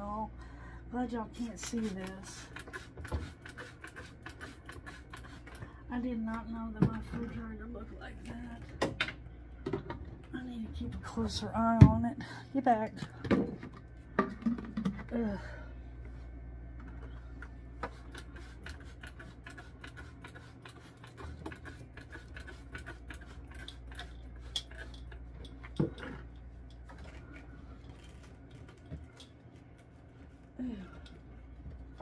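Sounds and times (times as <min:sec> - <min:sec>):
low steady hum: 0:00.0 - 0:32.0
items being handled: 0:16.8 - 0:32.0.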